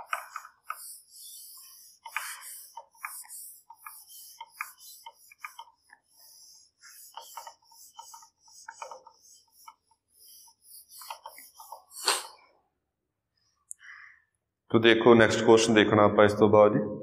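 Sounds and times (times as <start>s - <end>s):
duster scrubbing a whiteboard: 0.0s - 12.4s.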